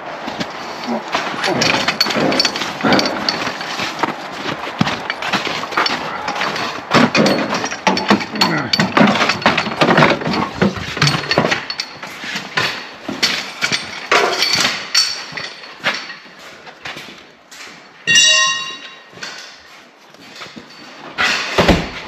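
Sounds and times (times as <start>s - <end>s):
parts and tools clattering: 0.1s - 22.0s
short ringing tone: 18.1s - 18.8s.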